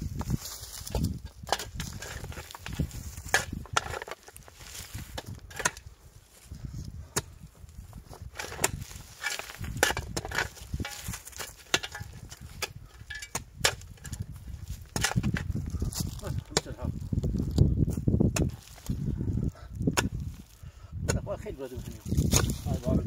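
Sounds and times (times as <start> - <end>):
pickaxe and shovel digging stony soil: 0.0 - 23.0.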